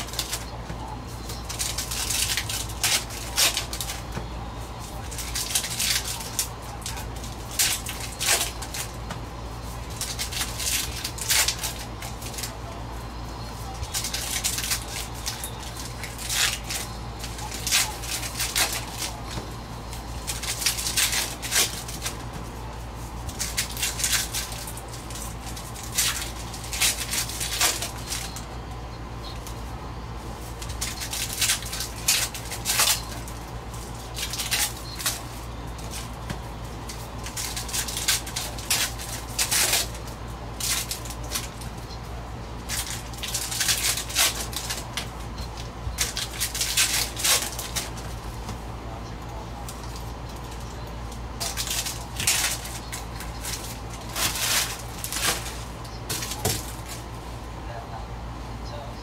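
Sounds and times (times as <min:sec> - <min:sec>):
foil wrappers crinkling and tearing: 0:00.0 - 0:57.4
steady low hum: 0:00.0 - 0:59.0.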